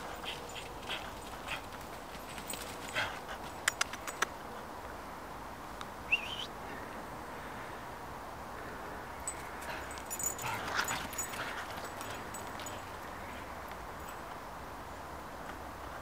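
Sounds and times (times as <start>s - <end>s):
paws rustling through dry leaves: 0.0s - 4.1s, 9.3s - 13.5s
sharp clicks: 3.6s - 4.4s.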